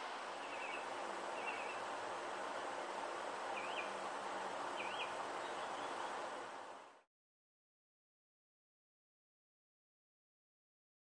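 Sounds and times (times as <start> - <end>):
fan rushing air: 0.0 - 7.1
bird chirping: 0.4 - 1.9, 3.5 - 4.1, 4.7 - 6.2.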